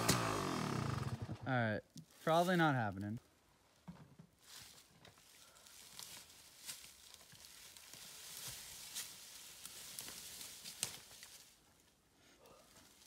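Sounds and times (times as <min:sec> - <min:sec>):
rustling and crunching of dry leaves: 0:04.4 - 0:12.0
twigs cracking: 0:05.6 - 0:11.6.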